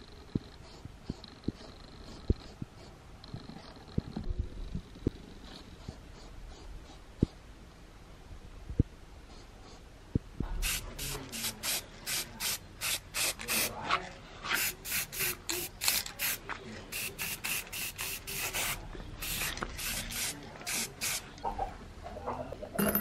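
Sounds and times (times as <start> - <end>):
spray paint can hissing: 10.6 - 13.7, 14.6 - 21.2.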